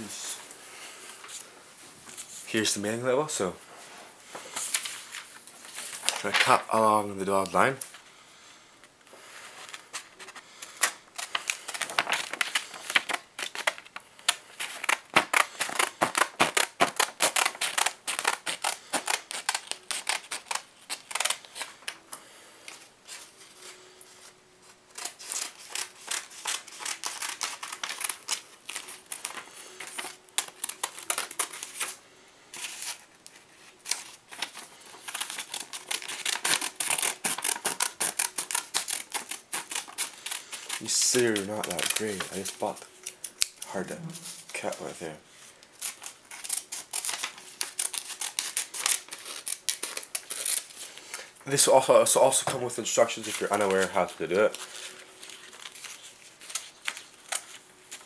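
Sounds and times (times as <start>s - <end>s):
paper rustle: 4.3s - 7.8s, 9.3s - 22.0s, 22.7s - 45.1s, 45.8s - 58.0s
scissors cutting paper: 24.9s - 31.7s, 35.0s - 42.5s.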